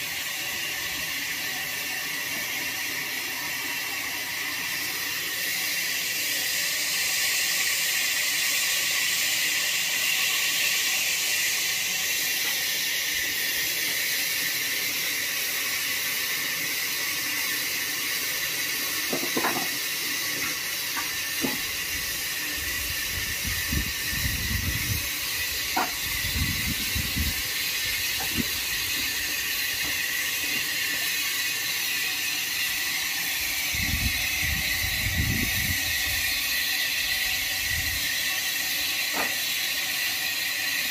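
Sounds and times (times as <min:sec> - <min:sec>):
steady high hiss: 0:00.0 - 0:40.9.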